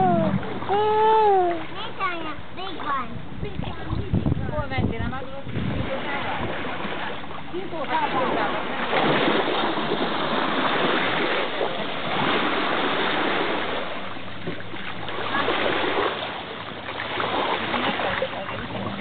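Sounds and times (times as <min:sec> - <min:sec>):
water at the shoreline: 0:00.0 - 0:19.0
wind: 0:00.0 - 0:19.0.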